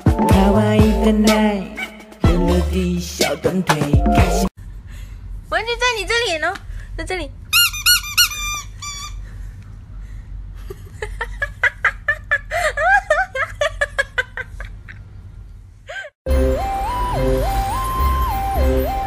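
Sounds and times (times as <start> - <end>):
squeaky dog toy squeaking: 7.5 - 9.2.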